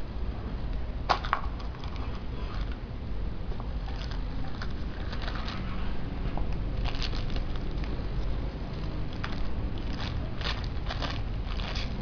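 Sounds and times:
plastic bag crinkling: 6.8 - 8.0, 8.7 - 12.0.

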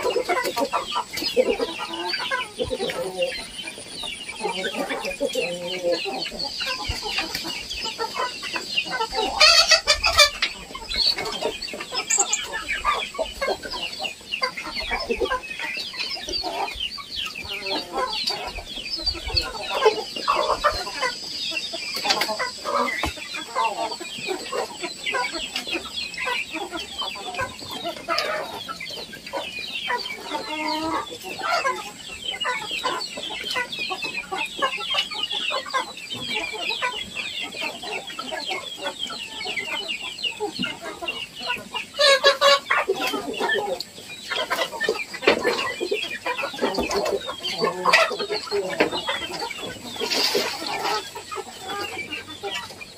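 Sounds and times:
chickens clucking and cheeping: 0.0 - 52.9.

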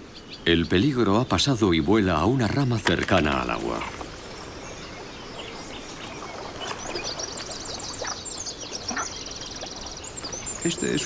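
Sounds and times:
birds chirping: 0.0 - 11.0
outdoor ambience: 0.0 - 11.0.

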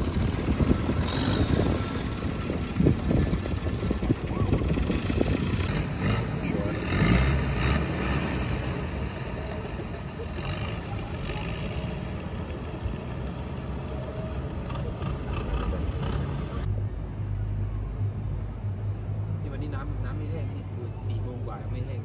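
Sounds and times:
boat engine low hum: 0.0 - 20.8.

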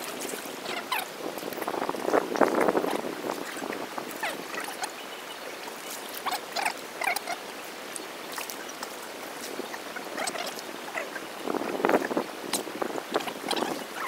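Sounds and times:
small splashes and drips: 0.0 - 14.0
water sloshing and splashing: 0.0 - 14.0.

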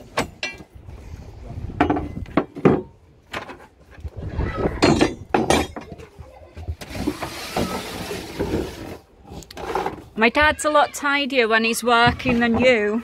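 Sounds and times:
knocks and clunks: 1.6 - 7.8.

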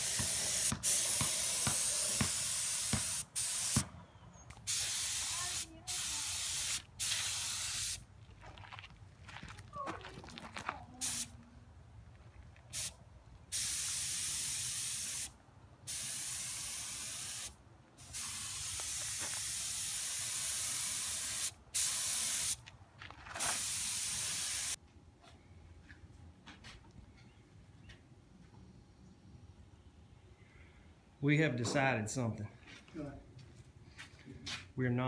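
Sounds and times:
spray gun hissing: 0.0 - 3.9, 4.7 - 8.0, 13.5 - 15.3, 15.9 - 22.6, 23.4 - 24.8.

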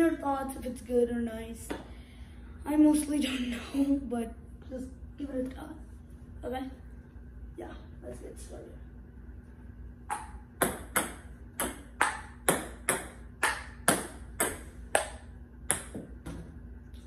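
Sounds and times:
table tennis ball bouncing: 10.1 - 16.6.

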